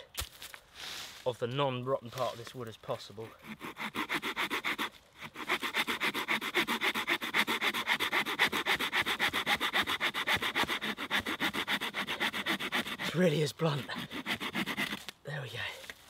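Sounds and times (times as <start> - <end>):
hand saw cutting wood: 3.0 - 15.2.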